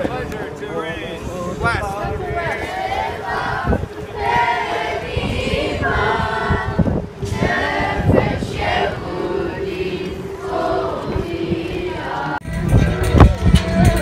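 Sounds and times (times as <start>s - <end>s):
choir singing: 2.1s - 12.4s.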